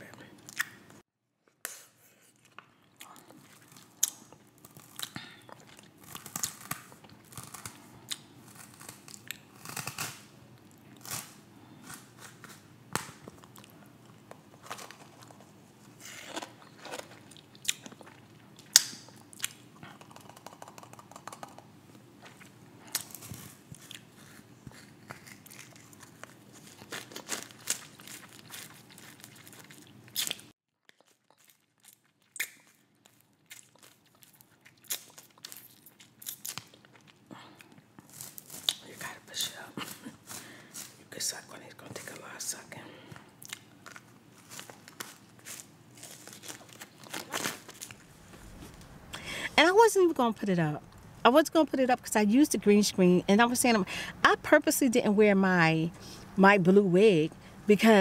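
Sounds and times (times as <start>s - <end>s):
person chewing and biting: 1.7s - 38.8s, 43.4s - 49.2s
mouth clicks and smacks: 17.6s - 21.7s.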